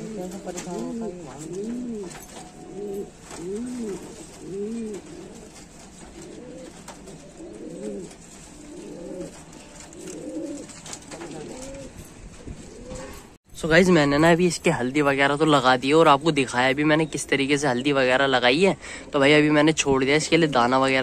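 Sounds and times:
pigeons cooing: 0:00.0 - 0:13.4.

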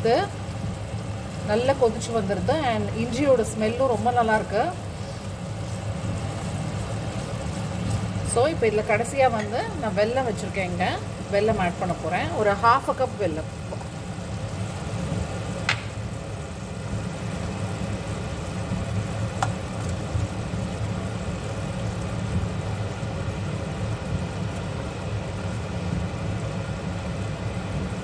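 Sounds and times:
steady low hum: 0:00.0 - 0:28.0
thick mixture simmering: 0:00.1 - 0:28.0
wooden spoon stirring: 0:05.2 - 0:08.4
sharp knocks against pan: 0:15.7 - 0:15.9.

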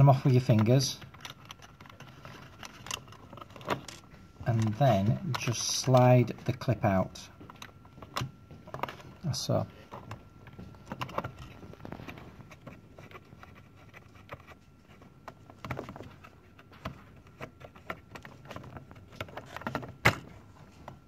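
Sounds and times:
hands handling small parts: 0:00.0 - 0:06.7.

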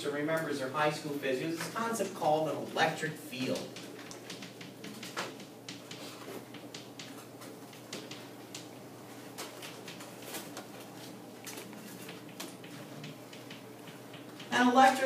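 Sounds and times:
chalk tapping and scraping: 0:03.4 - 0:08.7.

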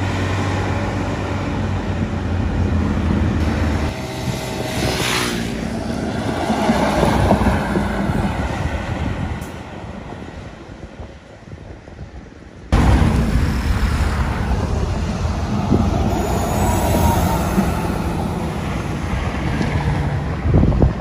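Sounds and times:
bus engine drone: 0:00.0 - 0:21.0
bus diesel engine passing: 0:12.8 - 0:20.9.

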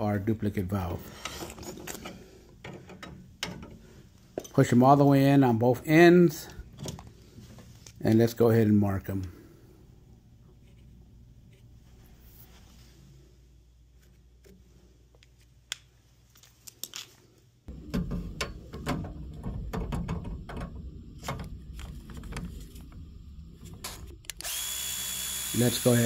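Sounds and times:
high whir of power tool: 0:24.3 - 0:26.0.

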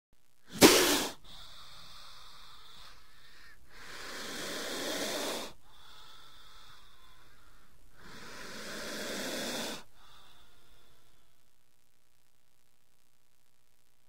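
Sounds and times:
faint steady hiss: 0:00.2 - 0:14.0
snake hissing: 0:00.4 - 0:10.7.

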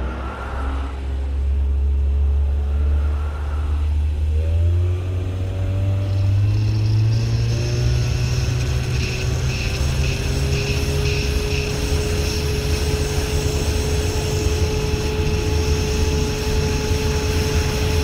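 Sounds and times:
boat engine running: 0:00.0 - 0:18.0
faint high whine: 0:00.0 - 0:18.0.

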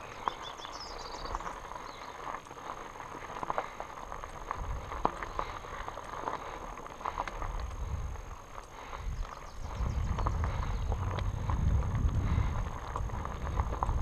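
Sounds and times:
bike tyres crunching on gravel: 0:00.0 - 0:14.0
bike frame rattling: 0:01.3 - 0:14.0
wind buffeting microphone: 0:04.4 - 0:05.7, 0:07.2 - 0:14.0.

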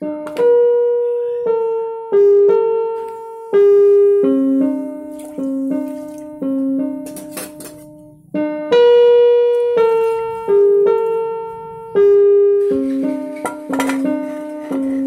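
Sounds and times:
keyboard playing slow melody: 0:00.0 - 0:15.0.

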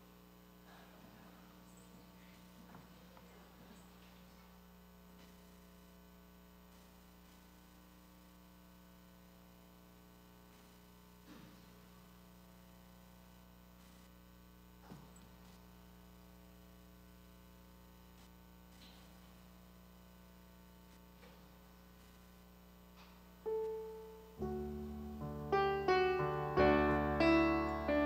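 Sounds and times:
electrical hum: 0:00.0 - 0:28.0.

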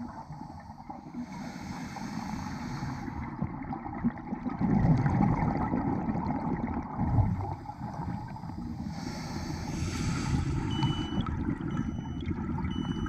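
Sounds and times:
diver inhaling through regulator: 0:00.1 - 0:03.4, 0:07.6 - 0:11.2
exhaled bubbles rushing: 0:03.2 - 0:08.7, 0:10.4 - 0:13.0.

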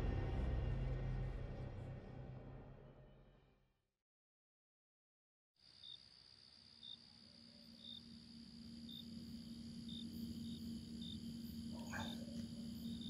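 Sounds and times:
low steady hum: 0:00.0 - 0:03.2
crickets trilling and chirping: 0:05.6 - 0:13.0.

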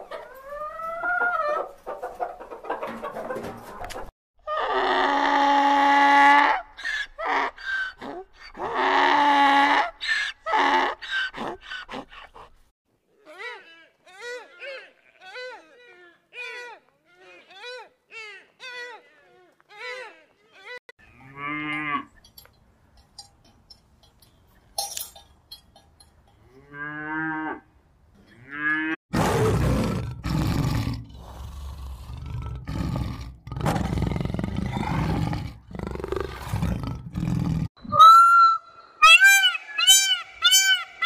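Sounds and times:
big cat growling and roaring: 0:29.1 - 0:37.7
peacock calling: 0:37.8 - 0:41.0.

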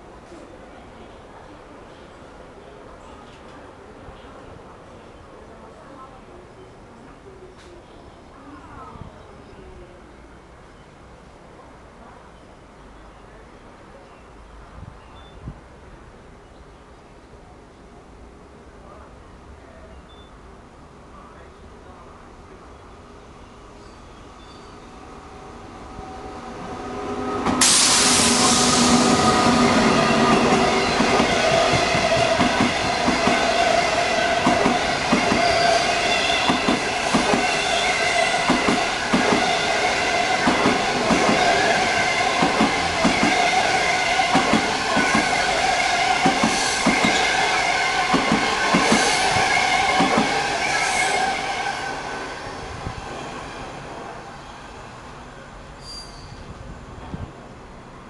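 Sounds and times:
train passing at speed: 0:21.2 - 0:58.0.

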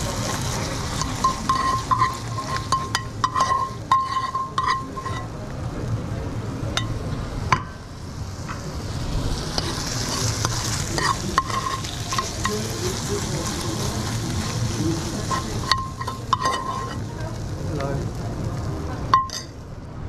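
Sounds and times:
food frying: 0:00.0 - 0:05.9, 0:06.5 - 0:19.7
metal utensil scraping a pan: 0:00.2 - 0:05.4, 0:09.6 - 0:13.1, 0:14.0 - 0:17.1, 0:19.2 - 0:19.6.

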